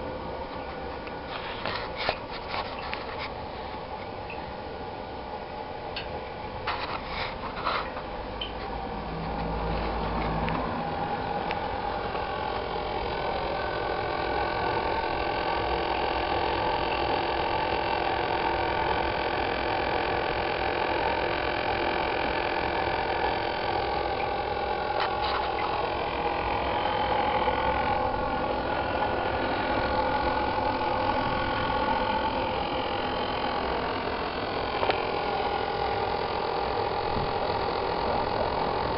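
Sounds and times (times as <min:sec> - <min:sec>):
machine hum with high tones: 0:00.0 - 0:38.9.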